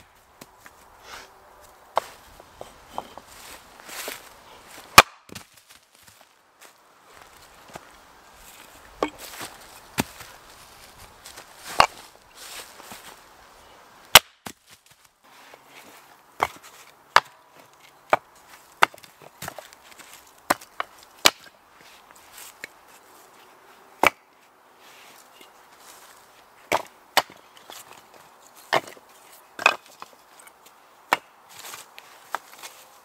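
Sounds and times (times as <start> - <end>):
axe chopping wood: 4.9 - 5.5, 14.1 - 14.6, 16.4 - 17.4, 18.1 - 19.7, 20.5 - 21.5, 24.0 - 24.3, 26.7 - 27.8, 29.6 - 29.8, 31.1 - 31.3.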